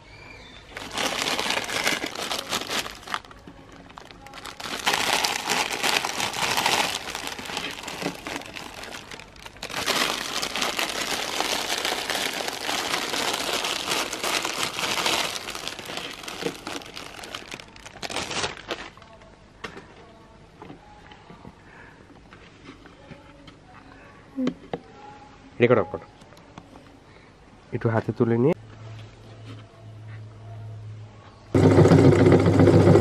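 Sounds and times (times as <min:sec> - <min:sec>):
plastic packet crinkling: 0:00.7 - 0:19.2.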